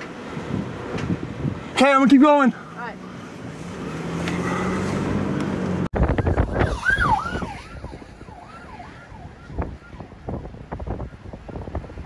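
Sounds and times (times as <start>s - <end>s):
wind noise: 0.0s - 1.8s, 5.0s - 12.0s
vehicle road and engine noise: 0.0s - 12.0s
emergency siren wailing: 6.0s - 11.9s.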